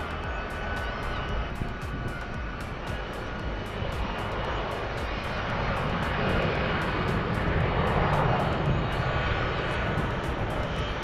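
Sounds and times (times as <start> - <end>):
jet engine roar: 0.0 - 11.0.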